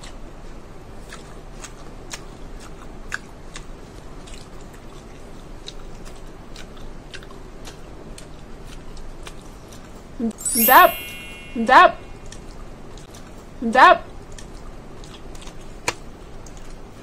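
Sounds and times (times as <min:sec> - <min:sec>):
person chewing: 0:01.0 - 0:09.5.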